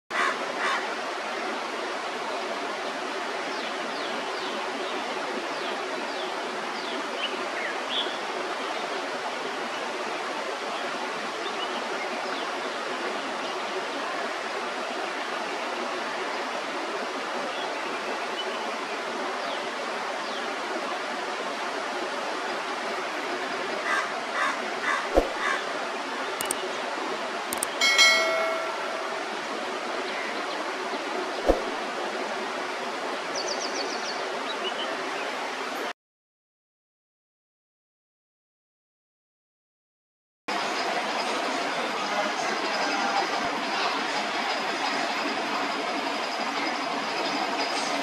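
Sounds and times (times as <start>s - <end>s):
running water rushing: 0.2s - 35.9s.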